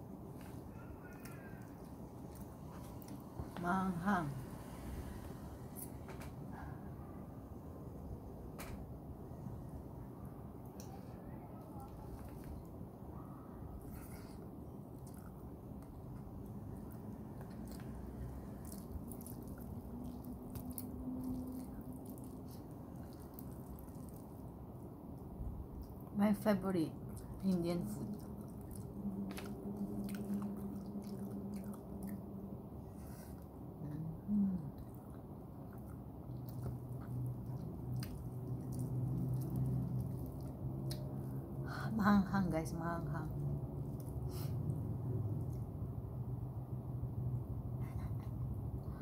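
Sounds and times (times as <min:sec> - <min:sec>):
low steady hum: 0:00.0 - 0:49.0
open-mouthed chewing: 0:14.8 - 0:24.6, 0:28.0 - 0:41.5
lip and tongue clicks: 0:34.8 - 0:41.5.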